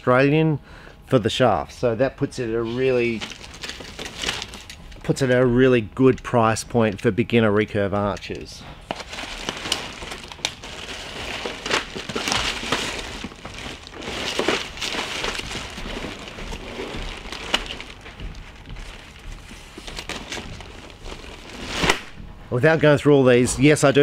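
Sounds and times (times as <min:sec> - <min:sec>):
cardboard rustling and crinkling: 0:02.6 - 0:04.8, 0:08.8 - 0:22.2.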